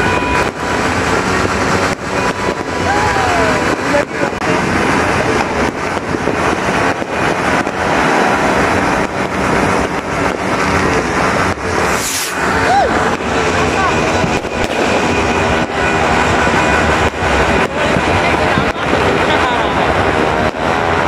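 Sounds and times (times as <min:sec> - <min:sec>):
firework whistle: 0:00.0 - 0:03.8, 0:11.7 - 0:18.2
fireworks bangs and crackling: 0:00.0 - 0:21.0.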